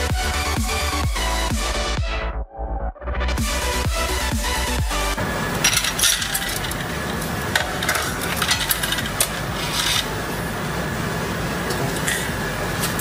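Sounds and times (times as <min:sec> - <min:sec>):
hands rustling among wiring: 0:05.6 - 0:10.3.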